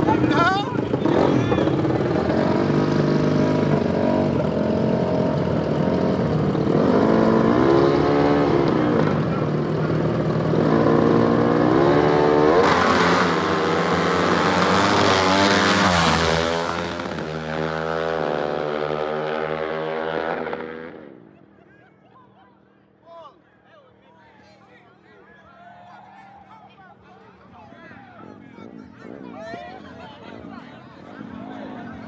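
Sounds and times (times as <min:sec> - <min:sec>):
motorbike passing close: 0:00.0 - 0:21.5
dirt bike engines revving: 0:00.0 - 0:32.0.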